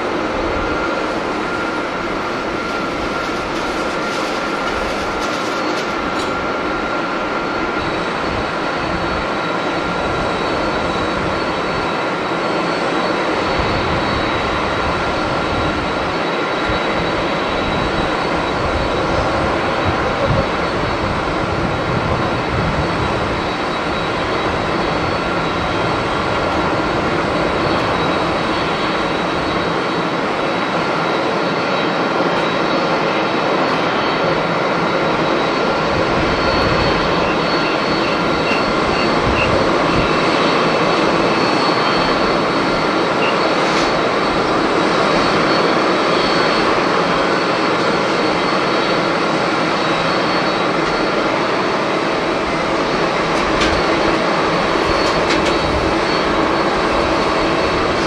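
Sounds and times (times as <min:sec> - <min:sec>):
jet engines rushing and whining: 0:00.0 - 0:58.0.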